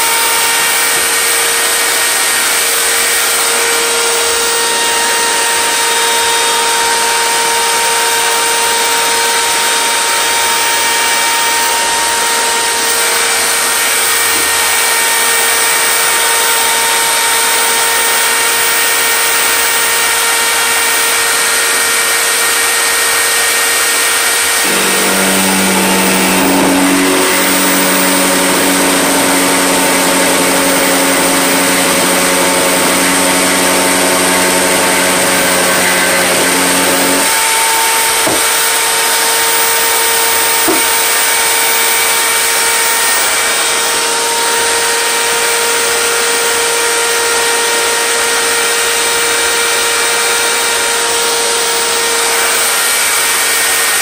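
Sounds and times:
electric router whining: 0:00.0 - 0:54.0
low hum: 0:24.5 - 0:37.2.

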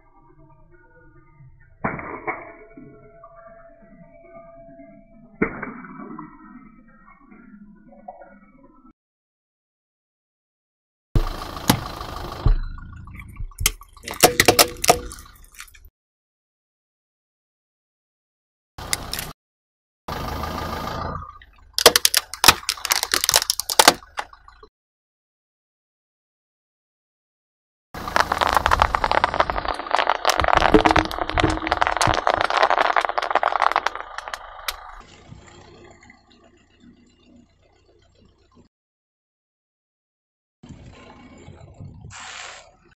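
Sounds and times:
car engine running: 0:11.2 - 0:13.6
plastic toy cracking and snapping: 0:21.8 - 0:24.2
tyre rolling over gravel: 0:28.0 - 0:34.4.

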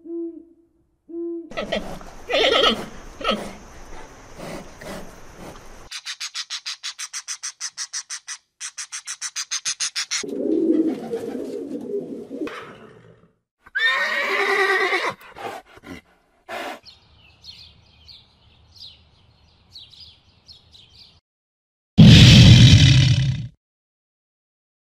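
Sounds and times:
horse whinnying: 0:01.5 - 0:03.5, 0:13.6 - 0:15.3.

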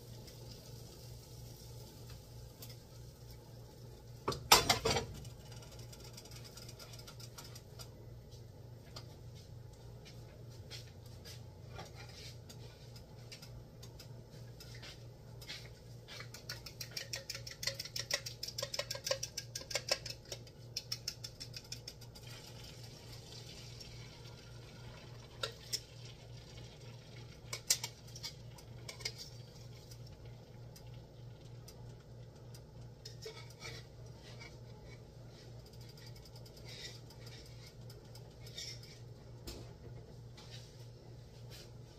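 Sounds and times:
steady low hum: 0:00.0 - 0:41.9
whisk clicking in bowl: 0:16.2 - 0:22.3.

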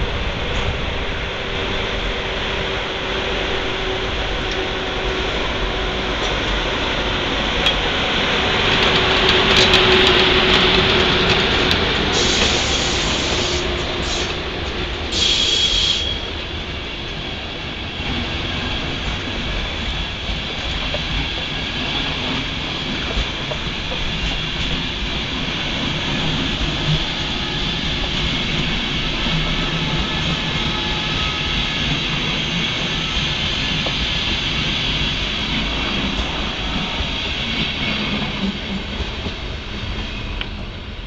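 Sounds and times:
train wheels rumbling on rails: 0:00.0 - 0:41.0
clatter over the track: 0:05.4 - 0:17.2.

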